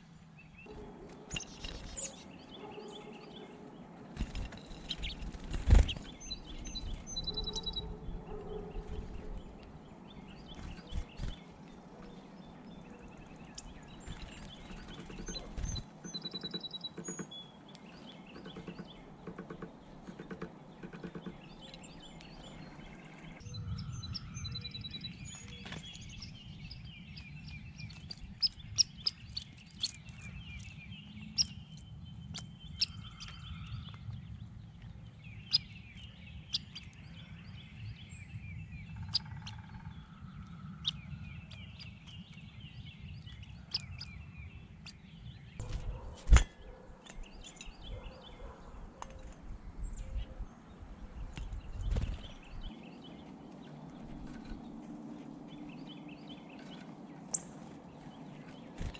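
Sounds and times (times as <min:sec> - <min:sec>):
songbirds chirping and trilling: 0:00.0 - 0:58.9
sharp clicks and ticks: 0:14.5 - 0:22.4.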